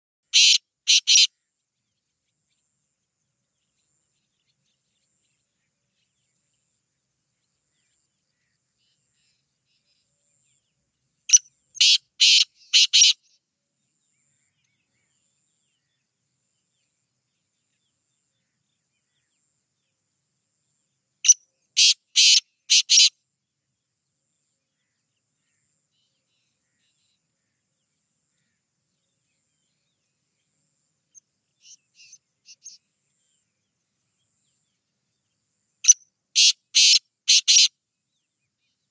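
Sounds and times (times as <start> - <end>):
francolin calling: 0.3 - 1.4, 11.3 - 13.4, 21.2 - 23.1, 31.1 - 33.4, 35.8 - 37.7.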